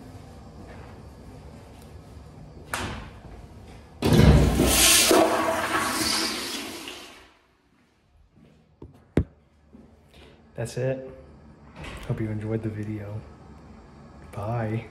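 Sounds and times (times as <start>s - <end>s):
toilet flushing: 4.0s - 7.5s.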